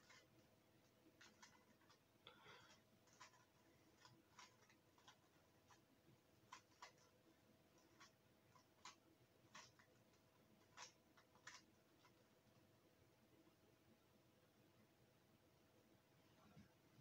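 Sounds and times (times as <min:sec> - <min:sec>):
puzzle cube layers clicking: 0:06.5 - 0:07.2, 0:07.8 - 0:12.2.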